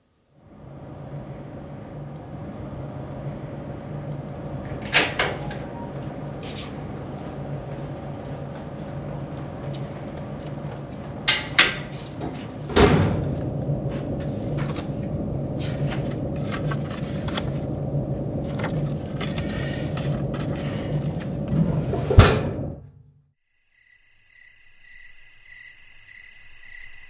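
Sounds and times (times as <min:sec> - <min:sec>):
steady hum: 0:00.0 - 0:23.2
metal locker door clanging open: 0:11.3 - 0:13.4
locker door slamming shut: 0:12.7 - 0:13.4.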